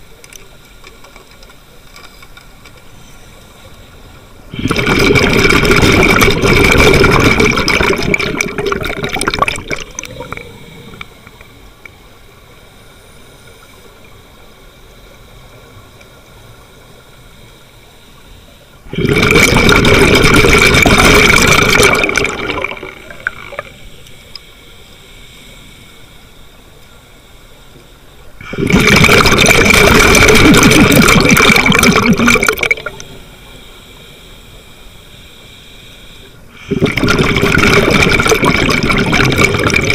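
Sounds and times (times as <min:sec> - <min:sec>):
exhaled bubbles underwater: 0:04.5 - 0:11.4, 0:18.8 - 0:23.8, 0:28.4 - 0:33.2, 0:36.5 - 0:39.9.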